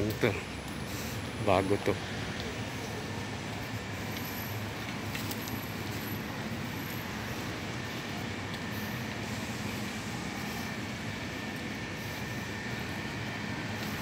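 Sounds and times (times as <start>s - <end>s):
low urban rumble with hiss: 0.0s - 14.0s.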